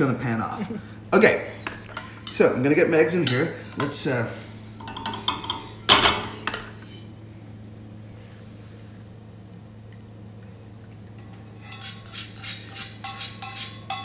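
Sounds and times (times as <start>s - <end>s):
utensil scraping metal: 11.5s - 14.0s.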